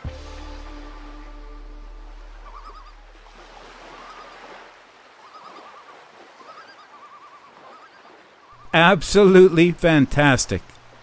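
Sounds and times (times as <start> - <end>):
animal trilling calls: 2.3 - 8.8.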